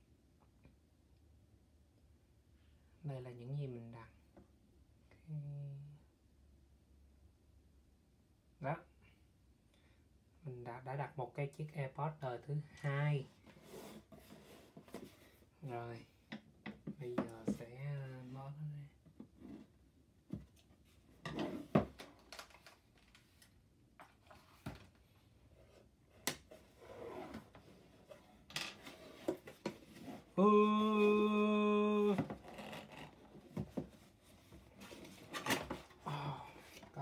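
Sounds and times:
cardboard and tape rustling: 0:32.0 - 0:37.0.

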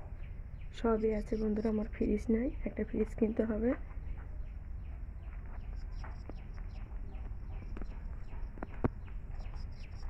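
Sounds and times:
chicks peeping: 0:04.1 - 0:10.0.

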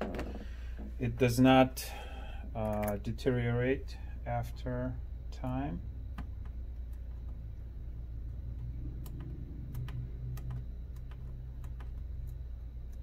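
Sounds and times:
steady low hum: 0:00.0 - 0:13.0
fingers clicking on plastic: 0:08.5 - 0:13.0.

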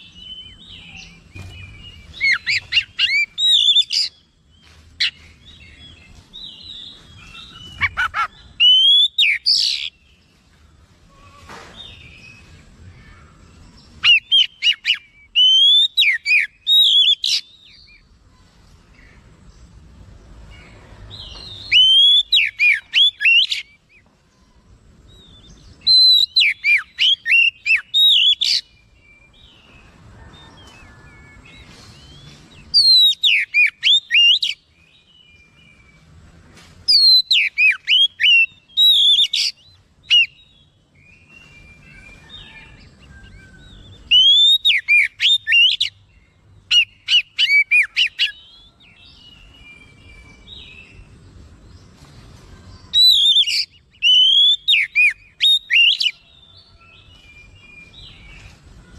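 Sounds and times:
songbird whistling rapidly: 0:00.0 - 0:04.2, 0:07.2 - 0:10.0, 0:14.0 - 0:17.8, 0:21.4 - 0:23.8, 0:25.8 - 0:28.6, 0:32.0 - 0:34.6, 0:36.9 - 0:42.8, 0:43.7 - 0:46.0, 0:46.7 - 0:48.5, 0:52.9 - 0:56.2.

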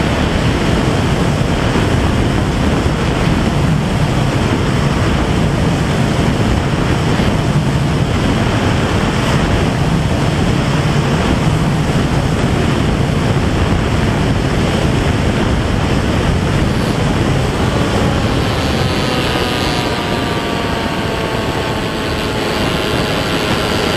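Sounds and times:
motor and propeller running: 0:00.0 - 0:23.9
wind rushing: 0:00.0 - 0:23.9
whine dropping in pitch: 0:11.0 - 0:23.9.

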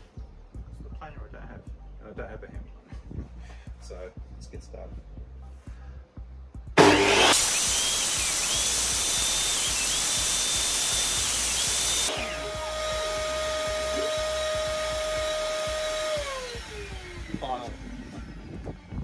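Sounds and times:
table saw cutting wood: 0:06.8 - 0:18.3
saw motor humming: 0:06.8 - 0:18.6.

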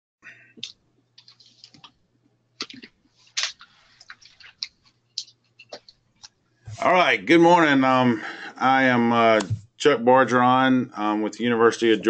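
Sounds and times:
faint low hum: 0:06.6 - 0:12.0.

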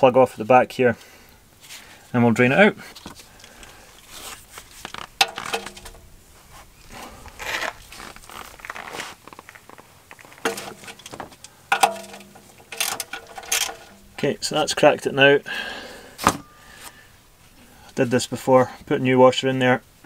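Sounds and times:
glove and clothing rustle: 0:02.8 - 0:11.6
metal clinks and scrapes: 0:03.4 - 0:06.1, 0:10.2 - 0:14.2.

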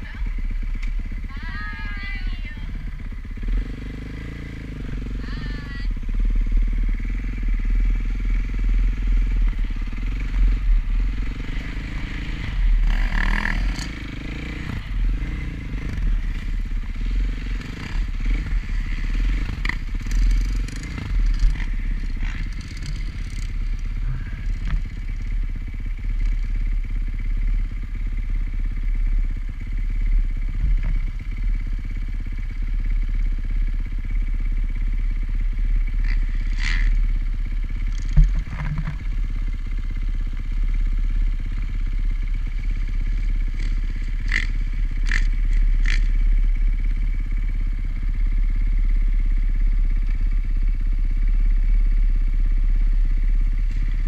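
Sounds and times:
dirt bike engine running: 0:00.0 - 0:54.0
sharp clicks and knocks: 0:37.9 - 0:39.1.

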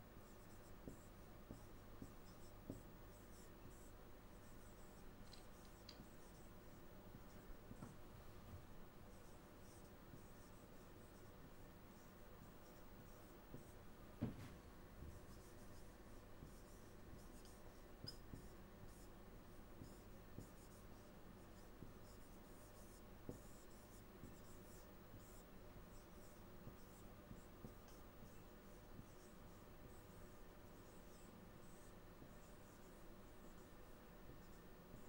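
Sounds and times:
marker scratching on whiteboard: 0:00.2 - 0:08.0, 0:09.1 - 0:35.0
knock: 0:14.2 - 0:14.6.

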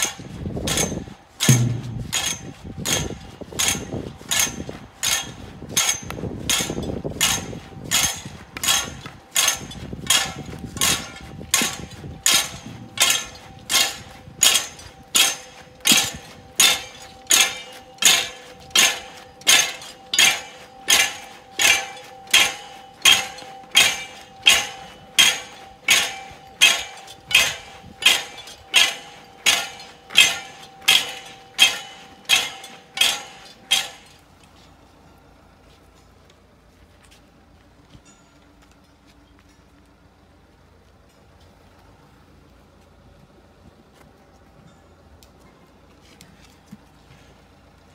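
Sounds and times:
sharp metallic strikes ringing: 0:00.0 - 0:34.2.

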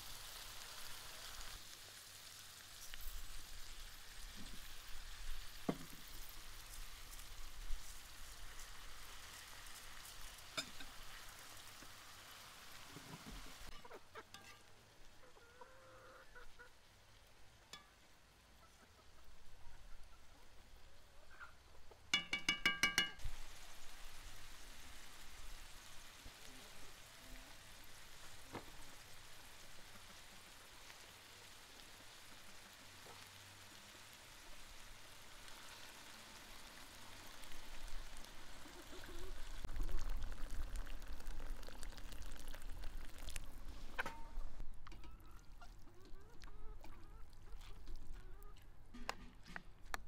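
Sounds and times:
liquid pouring: 0:37.4 - 0:45.6.

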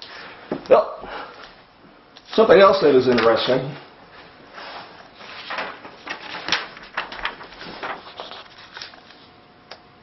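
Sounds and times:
paper rustling and crinkling: 0:02.2 - 0:09.4.

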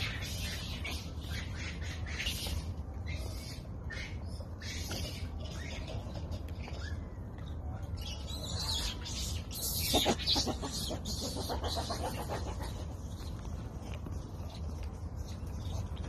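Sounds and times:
pulsed animal calls: 0:08.9 - 0:13.4.

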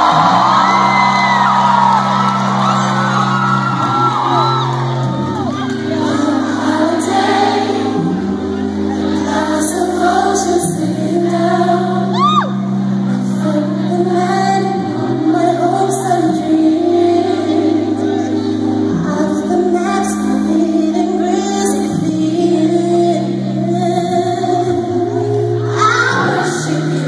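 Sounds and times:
bass and keyboard chords: 0:00.0 - 0:27.0
woman singing: 0:05.6 - 0:27.0.

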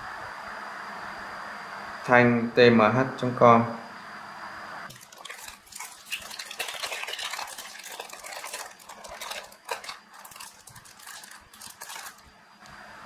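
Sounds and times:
pouch crinkling and rustling: 0:04.9 - 0:12.2.

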